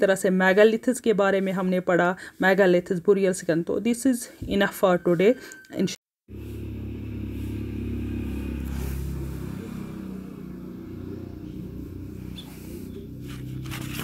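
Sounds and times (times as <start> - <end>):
motor hum: 6.3 - 14.0.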